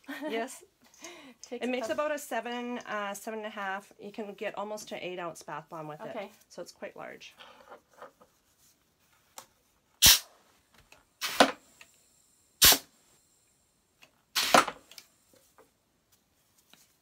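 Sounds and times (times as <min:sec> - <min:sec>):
air hiss blasts: 0:10.0 - 0:10.3, 0:11.2 - 0:11.6, 0:12.6 - 0:12.9, 0:14.3 - 0:14.7.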